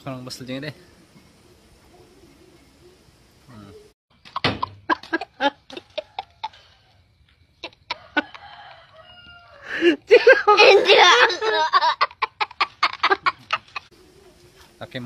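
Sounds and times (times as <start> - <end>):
boy laughing: 4.8 - 6.7, 7.6 - 8.9, 9.6 - 13.9.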